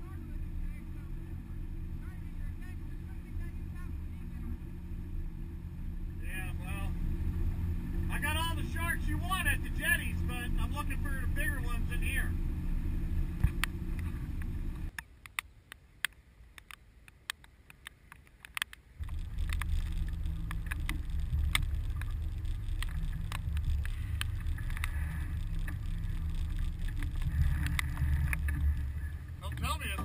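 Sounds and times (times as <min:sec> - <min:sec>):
outboard motor humming: 0:00.0 - 0:14.9, 0:19.0 - 0:30.0
sharp ticks: 0:13.4 - 0:28.8.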